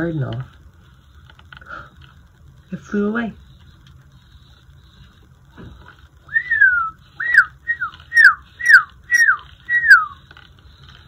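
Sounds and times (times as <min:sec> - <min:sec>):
person whistling birdsong: 0:06.3 - 0:10.2.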